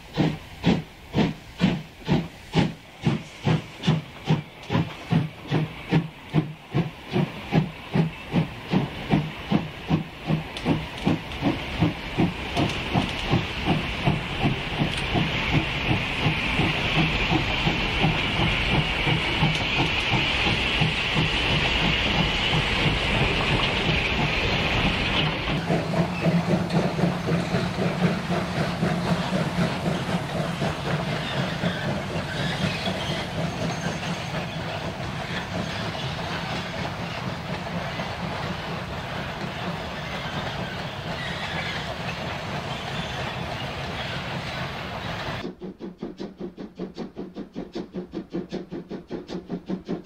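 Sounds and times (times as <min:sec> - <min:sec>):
steam hissing from cylinders: 0:00.0 - 0:50.0
steam locomotive exhaust chuffs: 0:00.0 - 0:50.0.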